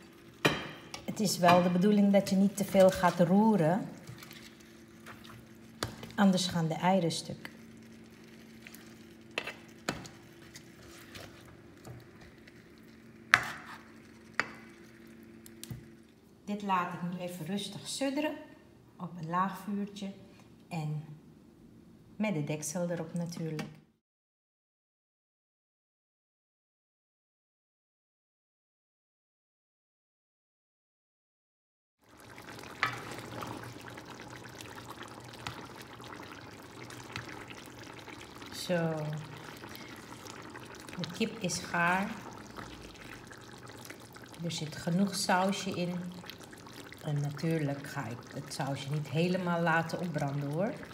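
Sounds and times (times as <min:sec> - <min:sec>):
sauce simmering in a pan: 0:00.0 - 0:16.2, 0:32.0 - 0:50.9
faint steady hum: 0:00.0 - 0:24.0.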